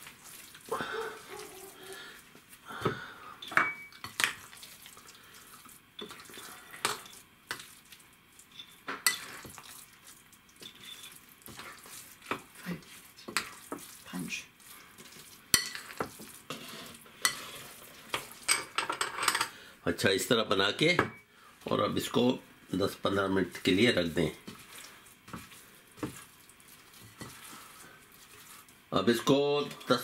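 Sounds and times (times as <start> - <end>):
dough scraping and rubbing: 0.0 - 2.6, 9.2 - 18.5, 23.8 - 28.8.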